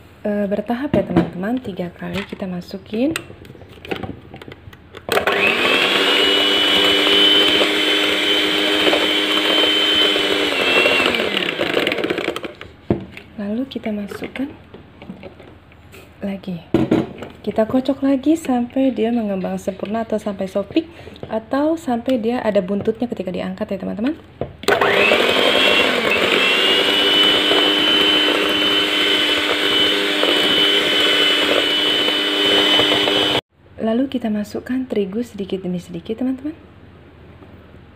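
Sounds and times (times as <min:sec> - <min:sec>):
electric hand mixer whining: 0:05.1 - 0:12.5, 0:24.7 - 0:33.4.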